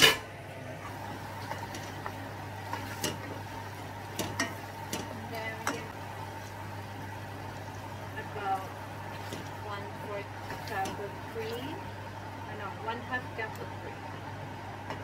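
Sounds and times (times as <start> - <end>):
low sizzle: 0.0 - 15.0
steady low hum: 0.0 - 15.0
wooden spoon stirring sauce in pan: 1.0 - 12.2.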